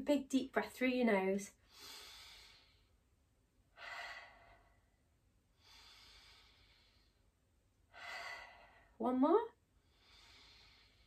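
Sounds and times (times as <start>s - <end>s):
woman breathing deeply through nose: 1.6s - 3.0s, 3.7s - 9.0s, 9.8s - 11.0s.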